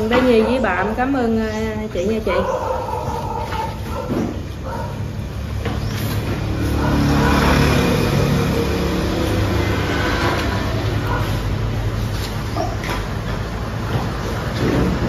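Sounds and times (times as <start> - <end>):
vehicle engine passing by: 5.8 - 15.0.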